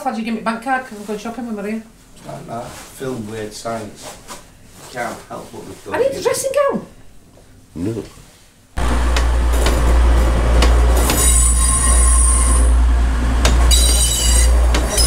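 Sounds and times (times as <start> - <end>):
vehicle low rumble: 8.8 - 11.3
high-pitched squeals: 8.8 - 15.0.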